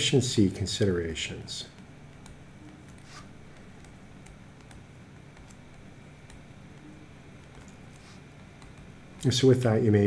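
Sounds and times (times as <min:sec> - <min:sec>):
low steady hum: 0:00.0 - 0:10.0
stylus ticking on tablet: 0:01.7 - 0:09.3.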